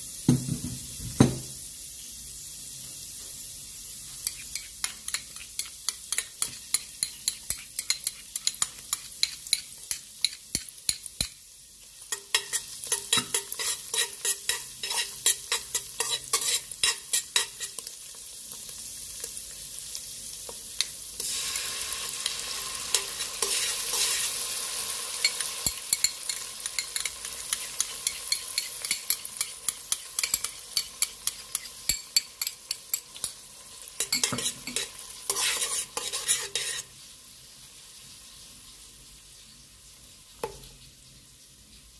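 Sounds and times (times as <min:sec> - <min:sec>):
garlic and onion sizzling in oil: 0:00.0 - 0:41.9
metal spoon scraping pot: 0:04.2 - 0:11.0, 0:12.1 - 0:17.8, 0:22.9 - 0:24.3, 0:25.2 - 0:33.4, 0:34.0 - 0:36.9.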